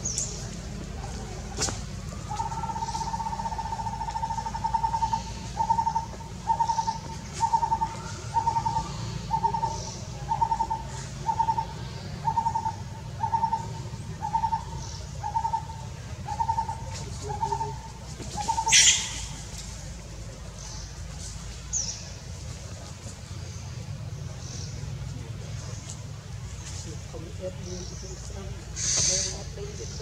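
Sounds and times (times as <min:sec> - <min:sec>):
bird hooting: 0:02.2 - 0:19.5.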